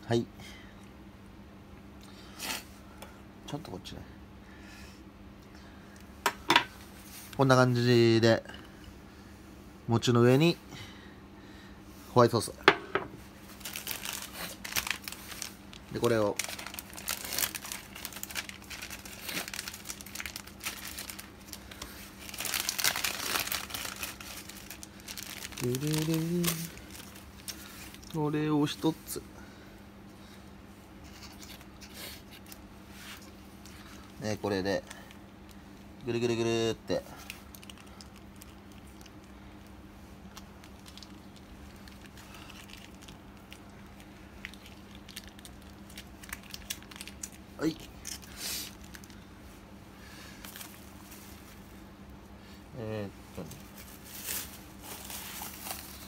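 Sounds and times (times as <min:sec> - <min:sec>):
steady low hum: 0:00.0 - 0:56.0
plastic packaging crinkling: 0:13.4 - 0:28.9, 0:37.2 - 0:39.6, 0:40.2 - 0:49.2, 0:50.4 - 0:51.6, 0:53.4 - 0:56.0.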